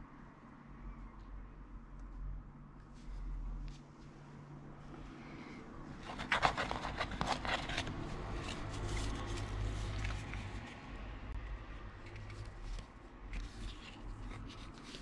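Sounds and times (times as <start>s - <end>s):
paper crackling: 6.0s - 10.7s
paper leaflets rustling: 6.0s - 10.7s.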